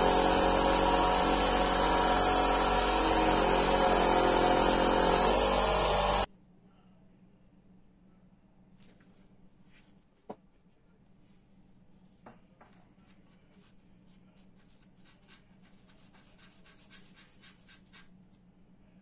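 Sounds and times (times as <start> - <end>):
palette knife scraping on paper: 13.1 - 18.2.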